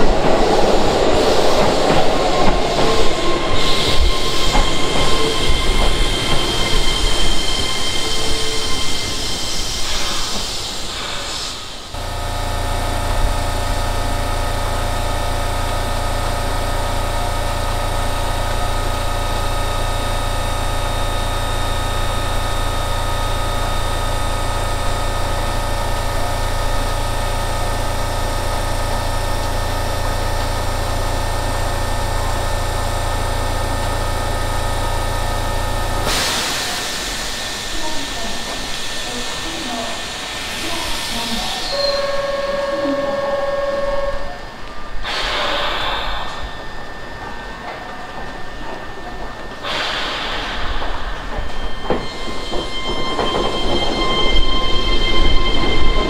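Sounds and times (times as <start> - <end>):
train running noise: 0.0 - 56.0
air compressor humming: 10.3 - 52.9.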